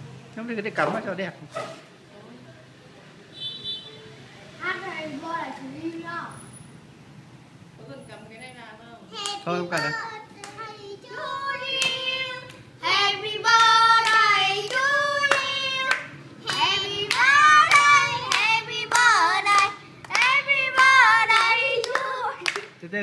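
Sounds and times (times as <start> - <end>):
people singing birthday song: 9.0 - 22.8
hands clapping: 9.2 - 10.6, 13.6 - 22.8.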